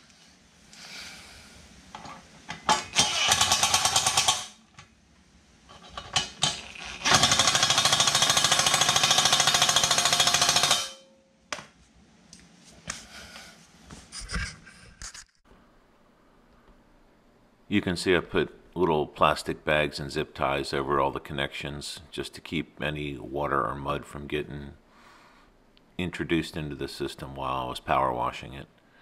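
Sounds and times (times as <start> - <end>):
impact driver hammering screws: 2.8 - 4.6, 6.4 - 11.0.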